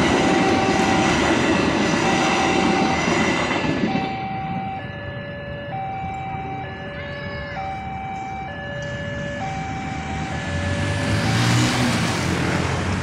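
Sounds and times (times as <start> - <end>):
level crossing two-tone alarm: 0.0 - 11.9
motorcycle engines revving: 8.8 - 13.0.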